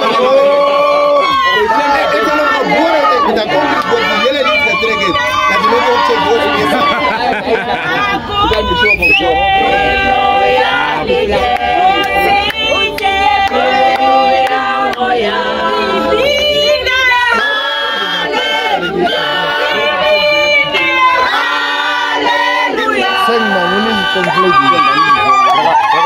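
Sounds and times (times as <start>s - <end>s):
group singing unaccompanied: 0.0s - 26.0s.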